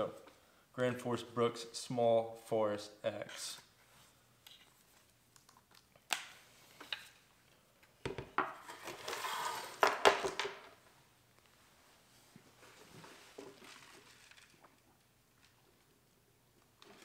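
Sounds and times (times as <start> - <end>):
belt scraping across table: 9.0 - 9.8.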